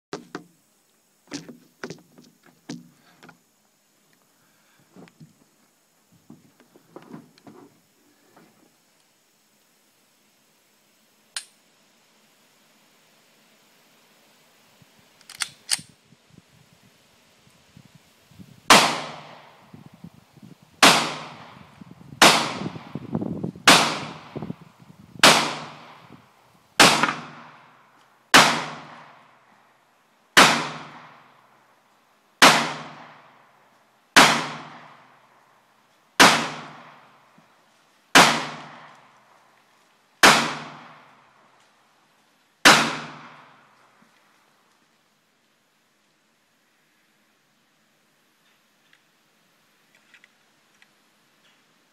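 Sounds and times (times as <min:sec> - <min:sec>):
pistol shots with echo: 0:18.7 - 0:19.4, 0:20.8 - 0:21.5, 0:22.2 - 0:22.8, 0:23.7 - 0:24.3, 0:25.2 - 0:25.9, 0:26.8 - 0:27.5, 0:28.3 - 0:29.0, 0:30.4 - 0:31.1, 0:32.4 - 0:33.1, 0:34.2 - 0:34.9, 0:36.2 - 0:36.8, 0:38.2 - 0:38.9, 0:40.2 - 0:40.9, 0:42.6 - 0:43.4.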